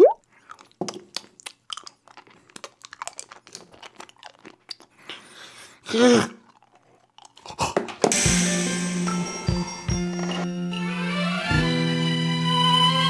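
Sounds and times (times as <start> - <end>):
hard candies clicking and crunching: 0.2 - 8.1
muffled grunt: 5.9 - 6.4.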